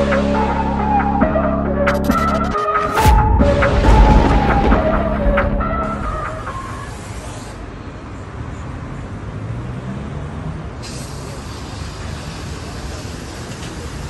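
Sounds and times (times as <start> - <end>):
rumble of street traffic: 0.0 - 2.4, 3.4 - 14.0.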